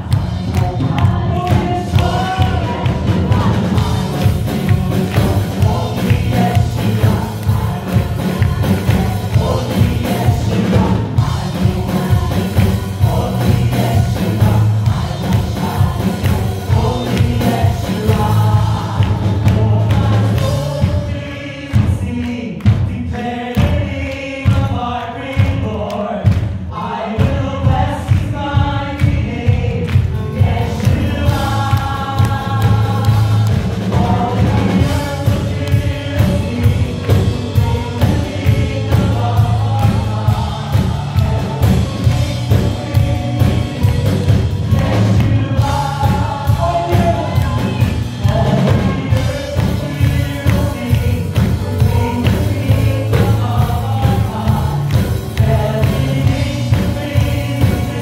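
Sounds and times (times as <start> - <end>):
steady beat with strong bass: 0.0 - 21.1
choir singing gospel music: 0.0 - 58.0.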